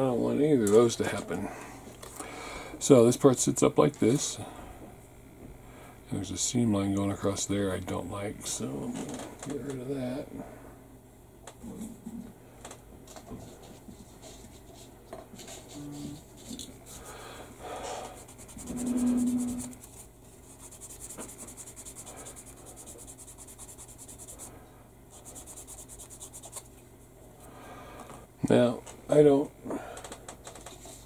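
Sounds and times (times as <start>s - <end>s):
short low hum: 18.0s - 25.4s
light scratching: 18.1s - 24.5s
sanding stick rubbing plastic: 18.2s - 24.5s, 25.2s - 26.6s.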